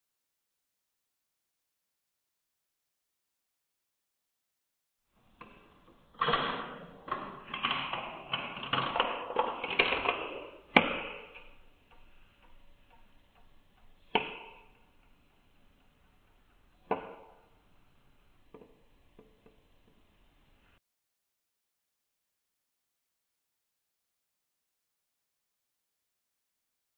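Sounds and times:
marble rattling through plastic tube: 5.4s - 15.0s
marble clicking onto plastic: 5.4s - 17.6s.

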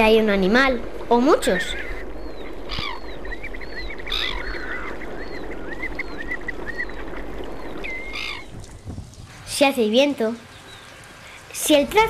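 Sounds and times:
flamingos calling: 1.2s - 8.8s.

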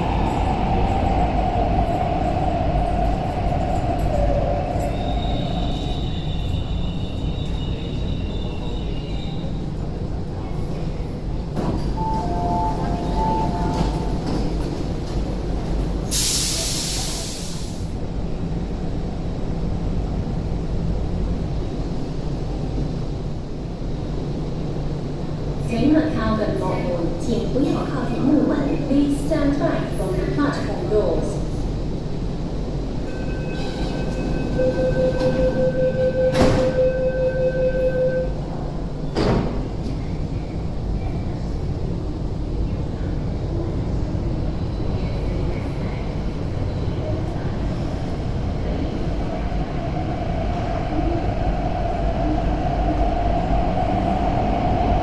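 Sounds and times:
train low rumble: 0.0s - 55.0s
train door closing warning tone: 3.5s - 9.8s, 11.5s - 15.1s, 33.0s - 39.6s
compressed air hiss: 16.1s - 17.9s.

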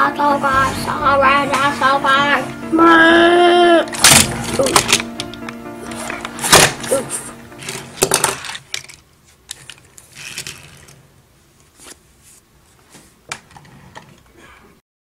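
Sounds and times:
toy car clattering on tabletop: 7.6s - 11.0s
toy cars clicking and tapping: 7.6s - 11.0s.

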